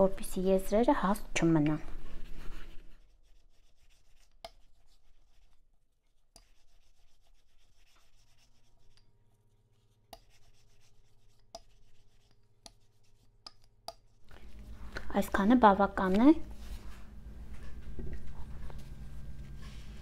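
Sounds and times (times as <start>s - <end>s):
rolling pin rubbing on dough: 2.1s - 13.6s.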